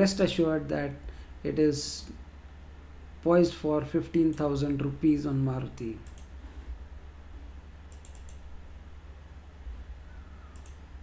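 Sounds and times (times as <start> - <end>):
low steady hum: 0.0 - 11.0
sharp computer clicks: 4.2 - 4.9, 5.8 - 6.4, 7.9 - 8.5, 10.5 - 10.9.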